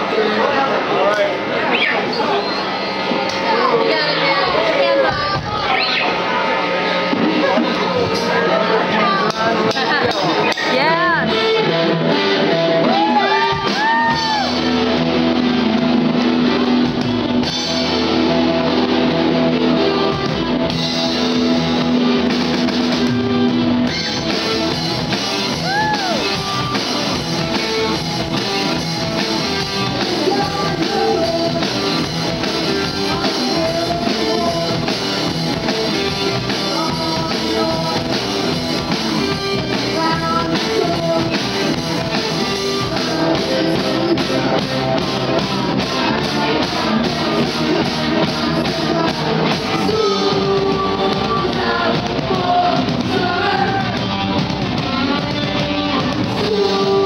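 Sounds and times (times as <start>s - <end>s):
rock band playing: 0.0s - 57.0s
person singing: 7.4s - 14.8s, 28.7s - 57.0s.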